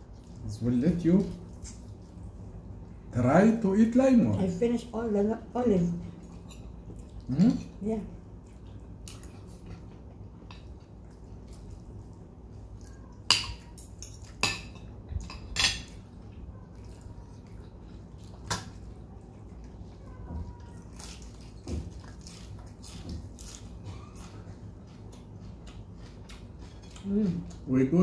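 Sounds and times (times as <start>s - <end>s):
cutlery clinking on plates: 13.3s - 16.0s.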